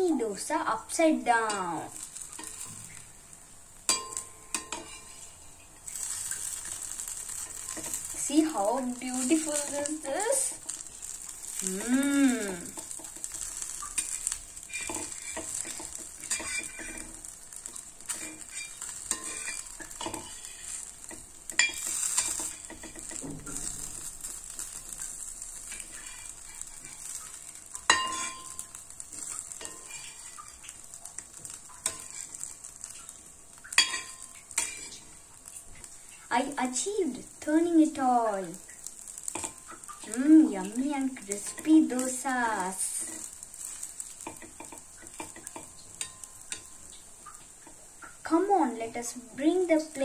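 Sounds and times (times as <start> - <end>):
food sizzling in oil: 0.0 - 50.0
metal spatula scraping pan: 1.5 - 3.0, 3.9 - 11.6, 12.7 - 32.9, 33.7 - 35.1, 41.2 - 46.8.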